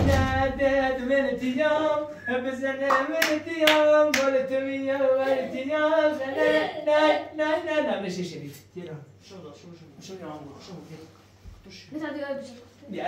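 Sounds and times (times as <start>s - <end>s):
hand claps: 2.8s - 4.3s.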